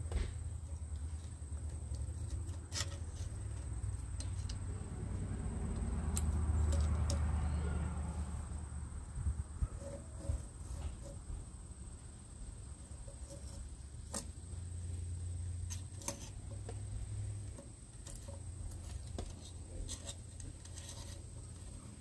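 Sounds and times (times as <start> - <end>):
metal parts clicking and tapping: 0.6 - 4.8, 5.7 - 7.3
steady low rumble: 3.5 - 13.0.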